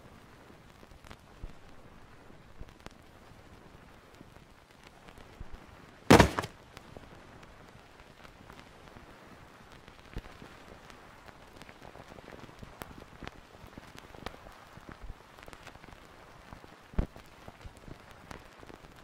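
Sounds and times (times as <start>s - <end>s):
soft ticks and crackles: 0.0s - 6.0s, 6.6s - 19.0s
sharp thump: 6.1s - 6.5s.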